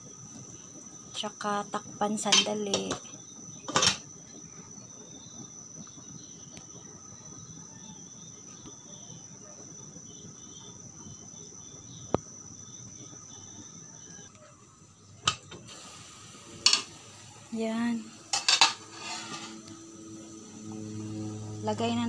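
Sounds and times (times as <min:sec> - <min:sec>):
soup simmering: 0:15.6 - 0:21.7
high-pitched whine: 0:16.1 - 0:22.0.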